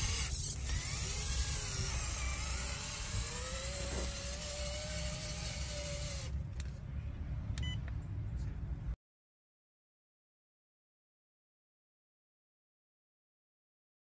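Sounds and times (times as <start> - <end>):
electric motor whining: 0.0 - 6.4.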